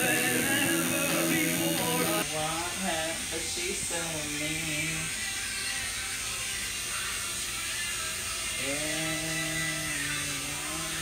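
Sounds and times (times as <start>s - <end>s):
tattoo machine buzzing: 0.0s - 2.2s, 3.9s - 11.0s.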